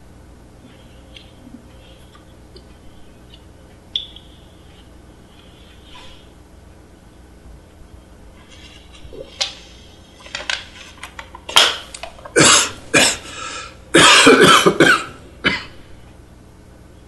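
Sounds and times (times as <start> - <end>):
man coughing hard: 12.3 - 15.8.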